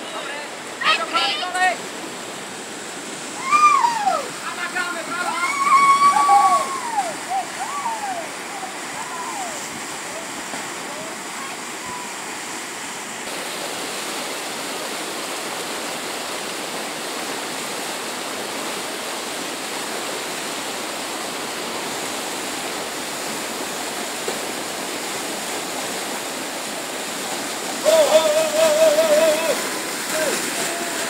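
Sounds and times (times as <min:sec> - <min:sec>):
water rushing over weir: 0:00.0 - 0:31.0
loud wavering call: 0:05.4 - 0:09.6.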